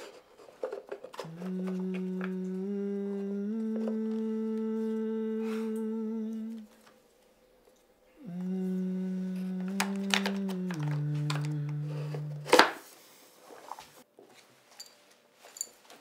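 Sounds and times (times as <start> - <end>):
person humming: 1.2 - 6.9, 8.1 - 12.8.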